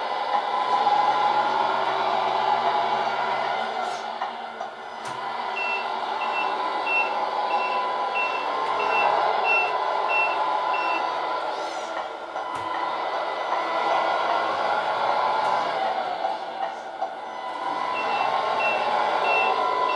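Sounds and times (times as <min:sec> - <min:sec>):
simulated diesel engine running: 0:03.8 - 0:19.9
high reversing beeps: 0:05.6 - 0:11.1, 0:17.9 - 0:19.9.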